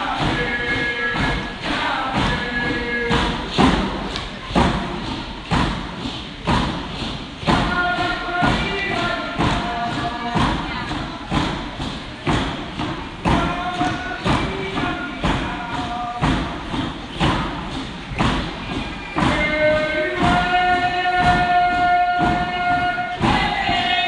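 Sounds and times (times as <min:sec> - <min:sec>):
group of voices singing: 0:00.0 - 0:04.2, 0:07.4 - 0:11.6, 0:13.2 - 0:16.5, 0:19.0 - 0:24.0
hand drums beating: 0:00.0 - 0:24.0.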